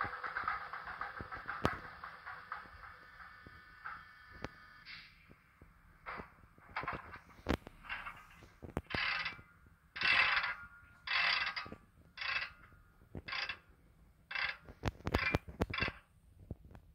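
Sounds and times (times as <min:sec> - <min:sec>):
short air hisses: 0:04.6 - 0:05.3.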